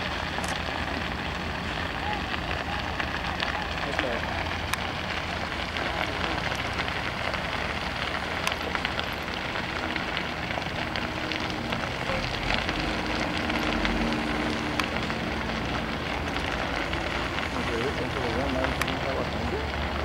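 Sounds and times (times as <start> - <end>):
brush fire rushing: 0.0 - 20.0
fire crackling: 0.0 - 20.0.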